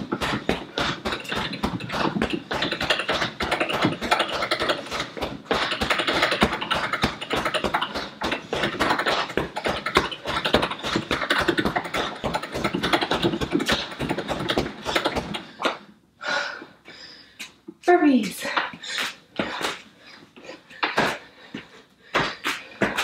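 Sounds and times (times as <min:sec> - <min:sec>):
punches hitting heavy bag: 0:00.0 - 0:15.4.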